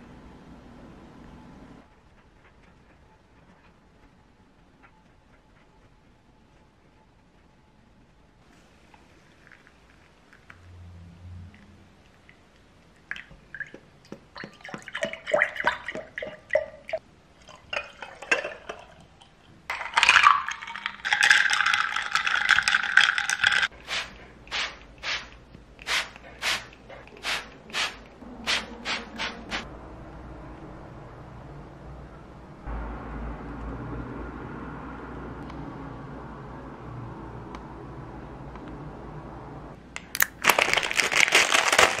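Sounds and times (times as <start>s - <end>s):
coffee pouring: 8.7s - 10.7s, 17.4s - 23.7s
ice cubes clinking in a glass: 19.8s - 23.7s.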